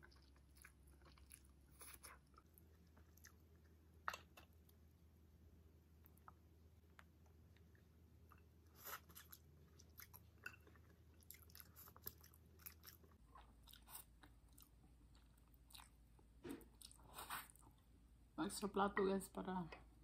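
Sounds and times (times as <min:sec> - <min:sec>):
chewing noodles: 0:00.0 - 0:04.8, 0:06.0 - 0:16.0, 0:16.6 - 0:17.8.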